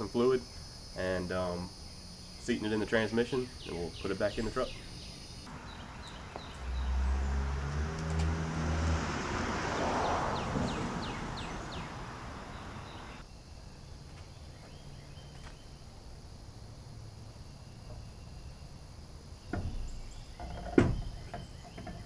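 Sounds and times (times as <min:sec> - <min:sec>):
bird chirping: 0:00.0 - 0:07.7, 0:09.9 - 0:15.8, 0:19.4 - 0:22.0
vehicle engine passing by: 0:05.5 - 0:13.2.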